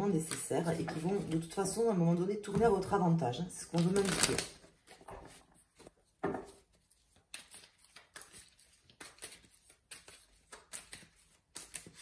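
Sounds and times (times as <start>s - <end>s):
cards being shuffled: 3.8s - 12.0s.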